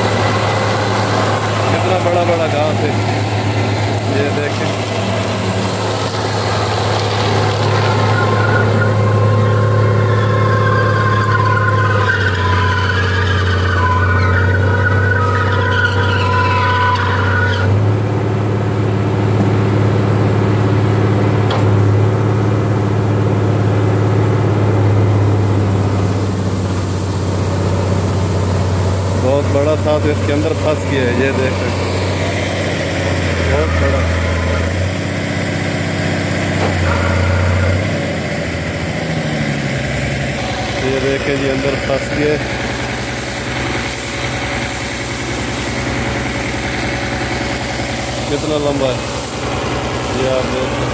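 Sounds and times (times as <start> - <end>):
high mower whine: 0.0 - 50.9
tractor engine running: 0.0 - 50.9.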